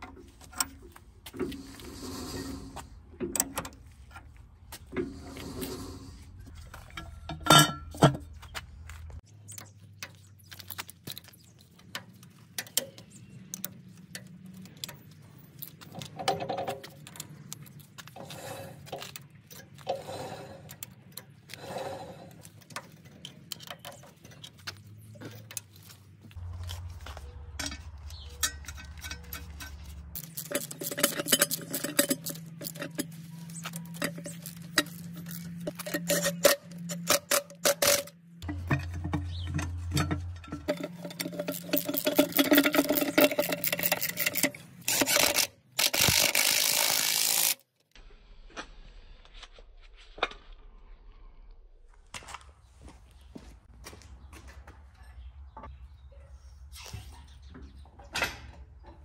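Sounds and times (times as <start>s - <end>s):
metal clinks and knocks: 6.5s - 8.4s, 22.6s - 45.5s.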